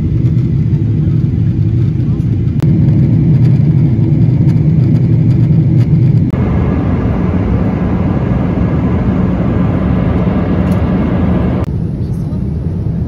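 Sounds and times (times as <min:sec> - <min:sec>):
vehicle rumble from inside: 0:02.6 - 0:13.0.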